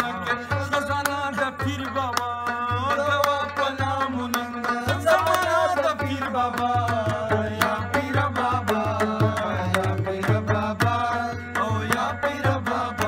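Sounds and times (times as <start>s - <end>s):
qawwali singing: 0.0s - 13.0s
tin can percussion: 0.0s - 13.0s.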